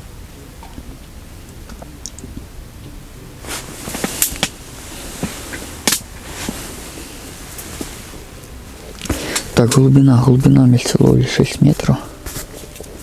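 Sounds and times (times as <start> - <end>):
low steady rumble: 0.0 - 13.0
rustling of fishing gear: 3.4 - 9.6.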